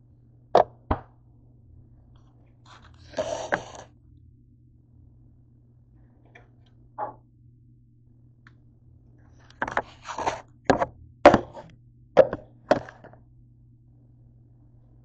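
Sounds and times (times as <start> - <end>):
short scrape: 2.7 - 3.9, 9.8 - 10.4
objects knocking on counter: 10.7 - 13.1.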